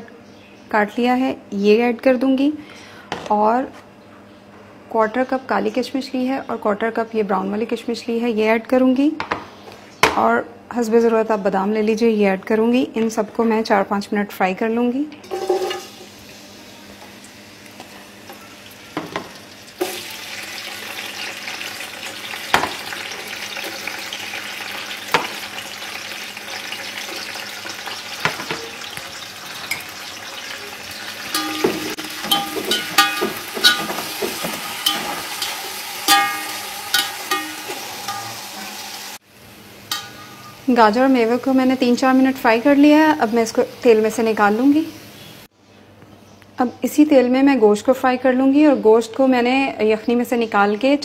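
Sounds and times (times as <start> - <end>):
food sizzling in oil: 15.3 - 45.5
utensil scraping metal pot: 31.2 - 39.0.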